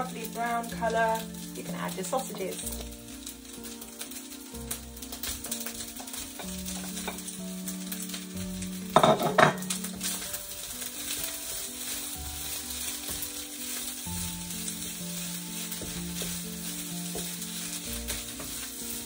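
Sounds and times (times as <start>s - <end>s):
food sizzling in a wok: 0.0s - 19.0s
wooden spatula stirring: 9.0s - 19.0s.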